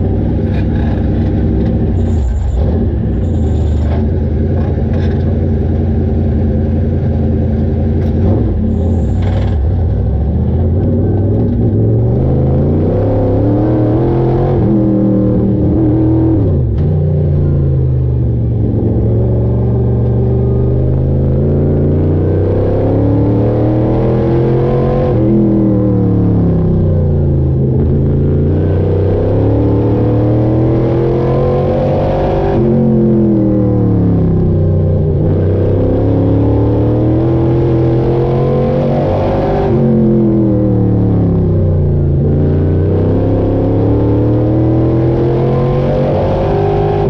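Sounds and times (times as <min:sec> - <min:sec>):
race car engine revving: 0:06.8 - 0:47.0.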